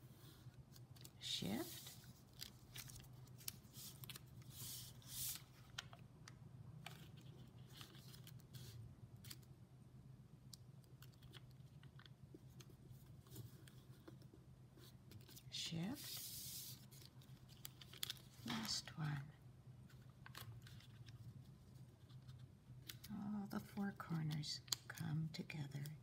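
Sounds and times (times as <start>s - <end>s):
paper being folded and creased: 0.1s - 6.0s, 6.8s - 9.5s, 11.0s - 18.8s, 19.9s - 23.3s.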